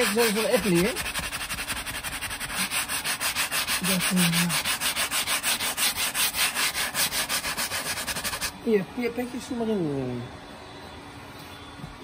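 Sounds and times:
brush scrubbing leather: 0.0s - 8.5s.

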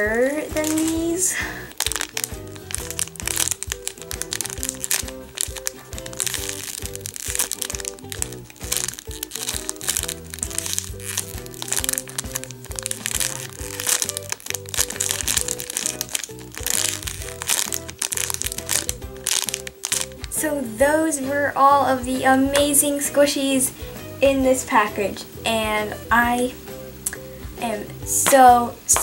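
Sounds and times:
background music: 0.0s - 29.0s
plastic bag crinkling: 0.5s - 20.4s.

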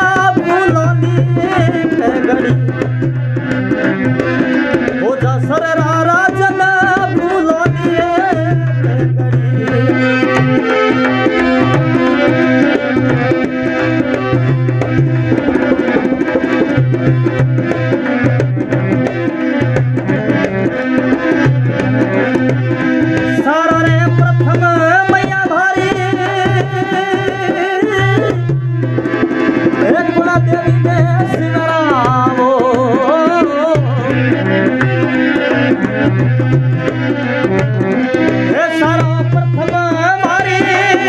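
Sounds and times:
dholak drum: 0.0s - 41.0s.

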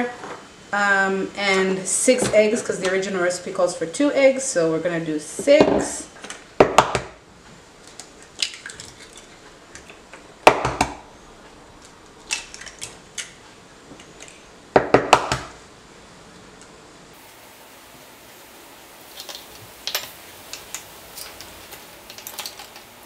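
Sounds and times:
eggshells cracking with sharp taps: 7.8s - 10.9s, 12.2s - 13.4s.

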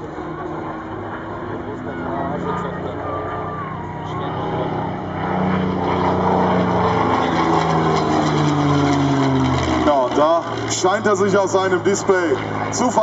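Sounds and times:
propeller aircraft engine flypast: 0.0s - 13.0s.

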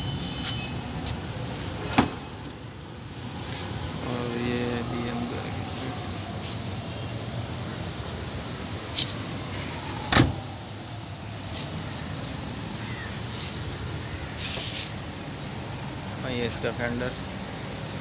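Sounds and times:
car door thump: 1.8s - 2.2s, 10.1s - 10.4s.

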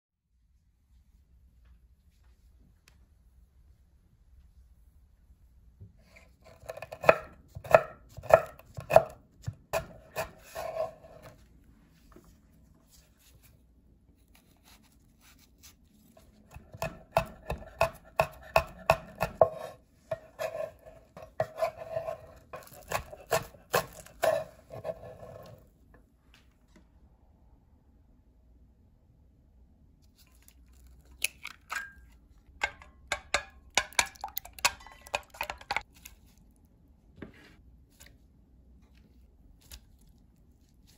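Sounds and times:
knife chopping on wooden board: 6.6s - 11.2s, 16.5s - 25.1s.

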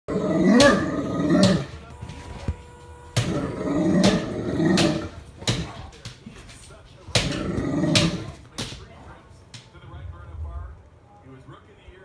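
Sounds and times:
dog growling excitedly: 0.1s - 1.7s, 3.3s - 5.2s, 7.2s - 8.4s
dog thumping on floor: 4.0s - 9.8s.

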